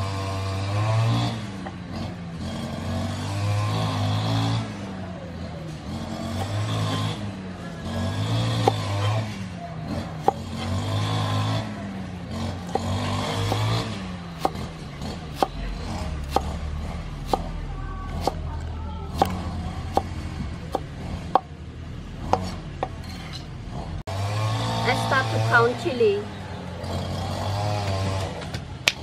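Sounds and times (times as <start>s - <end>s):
vehicle engine running: 0.0s - 29.0s
cleaver chopping on wooden board: 6.3s - 7.1s, 8.5s - 9.0s, 9.9s - 10.8s, 12.6s - 16.6s, 17.2s - 18.4s, 19.1s - 20.1s, 20.7s - 21.5s, 22.2s - 23.0s.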